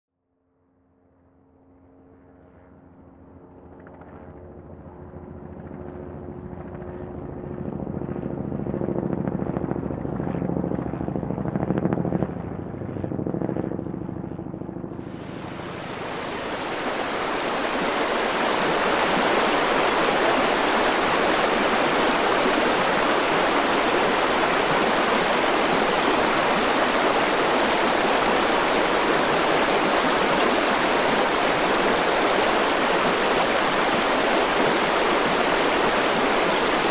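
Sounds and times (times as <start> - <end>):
river rapids rushing: 15.0 - 36.9.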